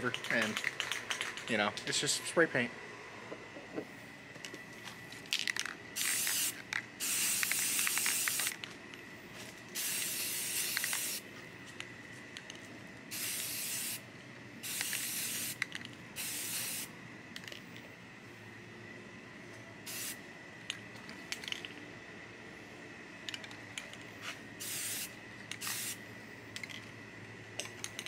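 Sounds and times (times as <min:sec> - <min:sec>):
spray paint can hissing: 0:06.0 - 0:08.6, 0:09.8 - 0:11.2, 0:13.1 - 0:14.0, 0:14.6 - 0:16.9, 0:19.9 - 0:20.2, 0:24.6 - 0:26.0.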